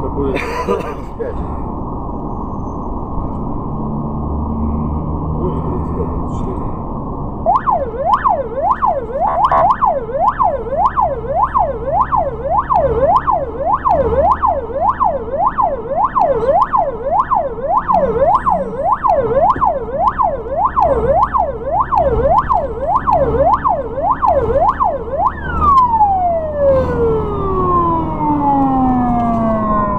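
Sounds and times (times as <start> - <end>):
engine hum: 0.0 - 29.9
ambulance siren wailing: 7.4 - 29.9.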